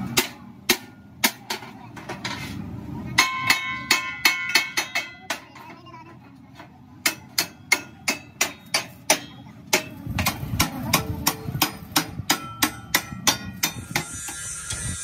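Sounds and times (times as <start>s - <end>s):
hammer striking steel rod: 0.0s - 1.7s, 3.2s - 5.5s, 7.0s - 15.0s.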